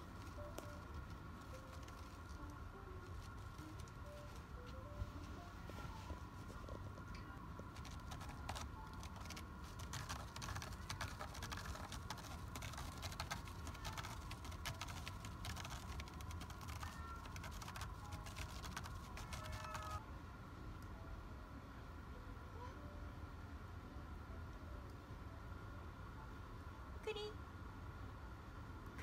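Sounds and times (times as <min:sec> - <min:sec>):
faint steady hum: 0:00.0 - 0:29.0
cat claws scratching: 0:07.7 - 0:20.0.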